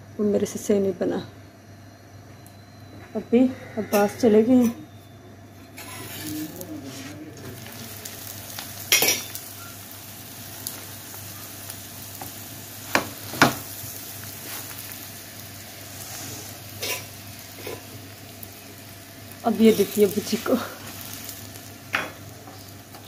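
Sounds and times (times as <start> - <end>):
ghee sizzling on griddle: 5.5 - 23.0.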